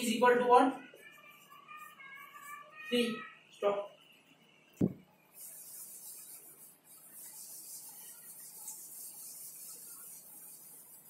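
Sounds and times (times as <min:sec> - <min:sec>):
short knock: 0:04.8 - 0:05.0
duster wiping whiteboard: 0:05.4 - 0:11.0.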